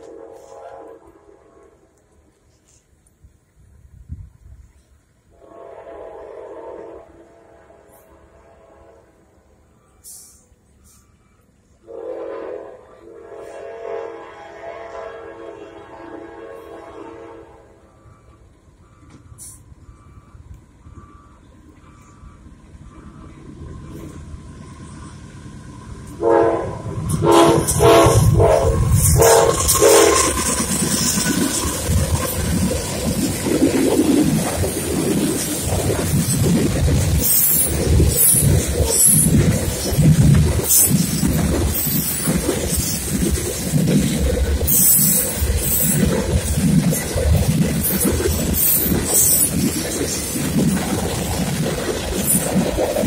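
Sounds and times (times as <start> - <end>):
locomotive horn blasts: 0.0 - 1.9, 5.3 - 9.3, 11.8 - 19.2, 26.2 - 30.5
freight train passing: 0.0 - 53.0
steel wheels clattering on rails: 26.9 - 53.0.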